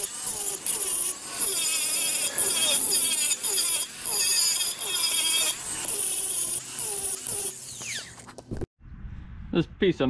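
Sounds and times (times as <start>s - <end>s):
hand tool scraping metal: 0.0s - 8.4s
short squeaks: 1.8s - 8.4s.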